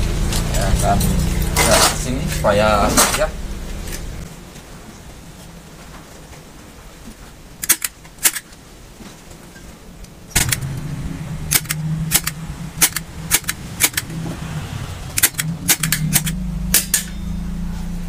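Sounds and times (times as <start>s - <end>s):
steady low hum: 0.0s - 18.0s
metallic hand tool clicks: 7.6s - 8.4s, 11.5s - 14.1s, 15.2s - 17.2s.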